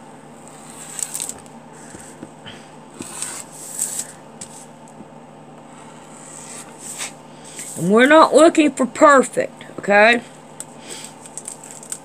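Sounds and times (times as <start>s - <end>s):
paper sheet rustling: 0.7s - 2.2s, 3.0s - 4.7s, 11.0s - 12.0s.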